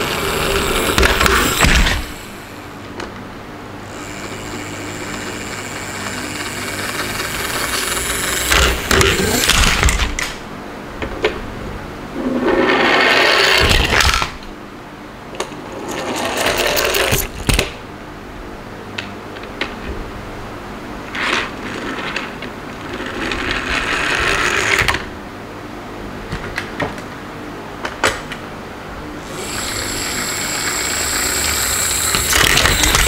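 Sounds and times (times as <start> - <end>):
toy truck wheels rattling on wood: 29.6 - 33.0.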